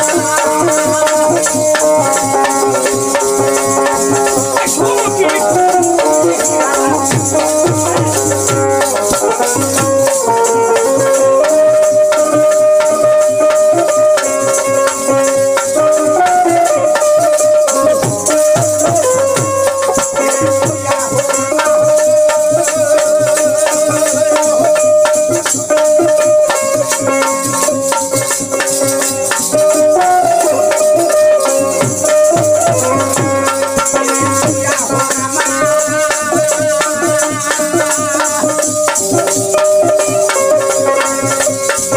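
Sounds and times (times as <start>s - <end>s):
wooden clappers jingling: 0.0s - 11.1s
hand drum beat: 0.0s - 41.9s
harmonium melody: 0.0s - 41.9s.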